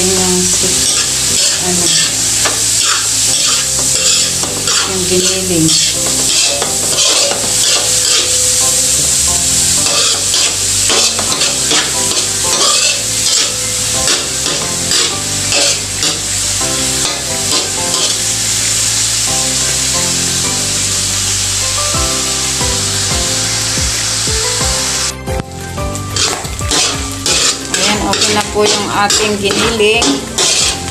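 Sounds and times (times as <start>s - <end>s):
meat sizzling in a wok: 0.0s - 30.9s
metal spatula scraping a pan: 0.4s - 8.6s, 9.6s - 18.3s, 26.1s - 30.9s.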